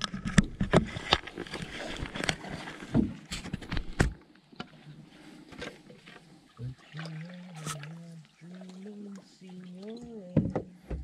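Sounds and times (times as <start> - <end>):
paddle knocks on canoe: 10.2 - 11.0.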